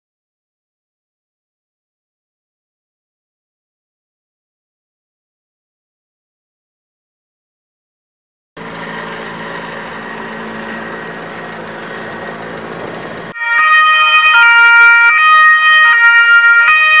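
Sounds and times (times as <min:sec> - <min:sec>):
police car two-tone siren: 0:13.3 - 0:17.0.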